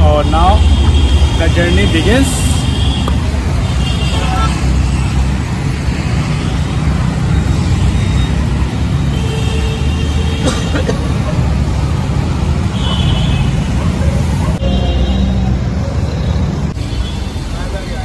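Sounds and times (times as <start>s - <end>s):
street traffic: 0.0s - 18.0s.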